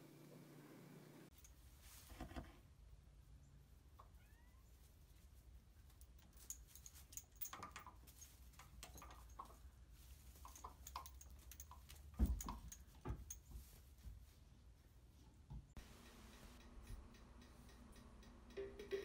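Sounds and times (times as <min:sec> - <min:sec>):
kitten rustling in straw: 0:01.5 - 0:02.2, 0:03.2 - 0:07.1, 0:09.4 - 0:10.8, 0:13.4 - 0:15.2.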